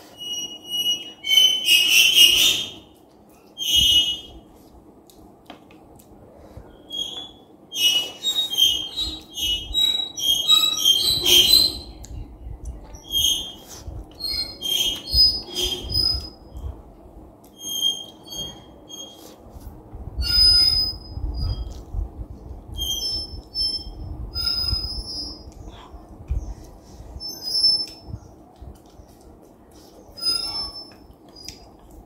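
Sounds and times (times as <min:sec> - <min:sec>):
squeaky air sucking whistles: 0:00.0 - 0:02.9, 0:03.5 - 0:04.4, 0:06.7 - 0:12.0, 0:13.0 - 0:16.6, 0:17.5 - 0:19.4, 0:20.2 - 0:21.8, 0:22.8 - 0:25.7, 0:27.2 - 0:28.2, 0:30.1 - 0:31.7.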